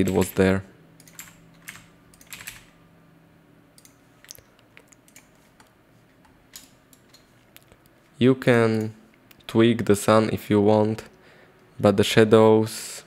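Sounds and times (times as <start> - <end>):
computer keyboard keys clicking: 1.0 - 2.7, 3.8 - 5.7, 6.5 - 7.2.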